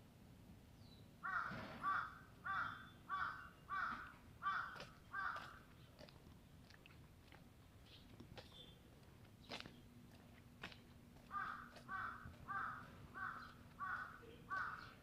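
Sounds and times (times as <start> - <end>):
crow cawing: 1.2 - 5.7, 11.3 - 15.0.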